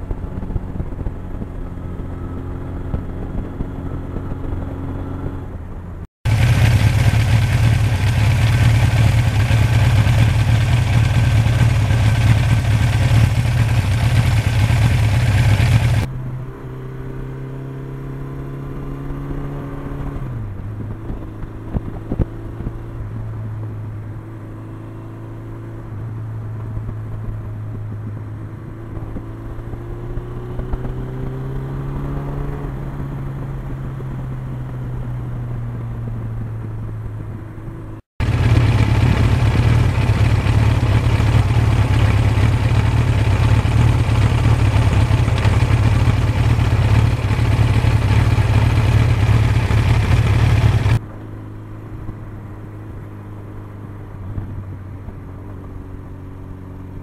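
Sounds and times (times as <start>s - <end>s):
wind noise over microphone: 0.0s - 16.1s, 19.0s - 24.1s, 25.8s - 40.8s, 53.6s - 57.0s
motorcycle engine running: 0.0s - 57.0s.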